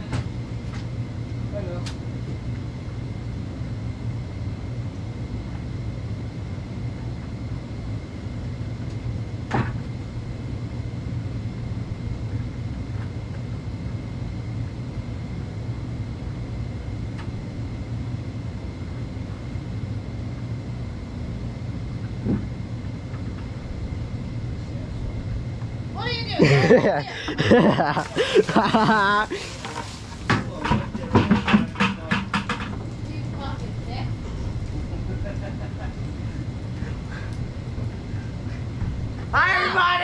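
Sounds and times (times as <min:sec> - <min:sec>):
hot tub pump and jets running: 0:00.0 - 0:40.0.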